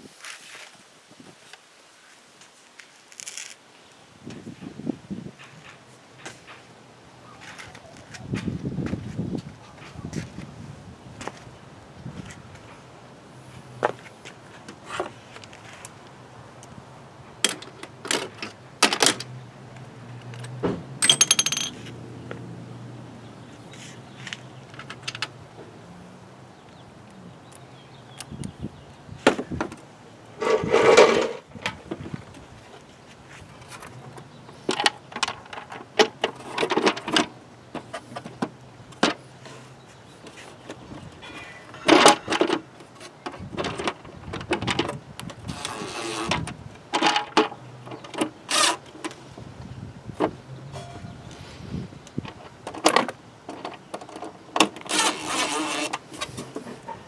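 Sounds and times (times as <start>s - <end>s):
metal parts and tools clinking: 20.3s - 22.0s
brief metallic ring: 50.8s - 51.2s.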